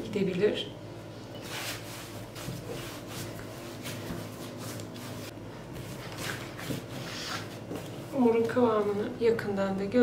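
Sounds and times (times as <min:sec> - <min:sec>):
hands kneading dough: 0:01.4 - 0:09.0.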